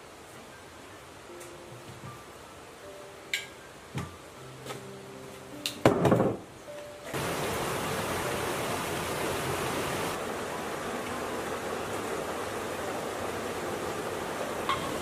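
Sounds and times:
knocks on wooden table: 5.8s - 6.4s
stream water rushing: 7.1s - 15.0s.

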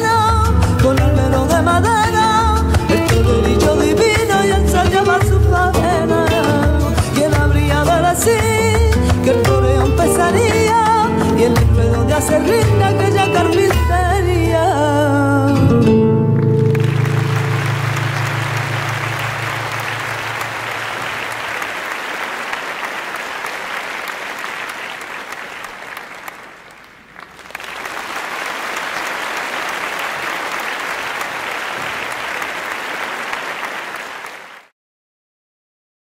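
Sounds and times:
audience applauding: 16.2s - 34.7s.

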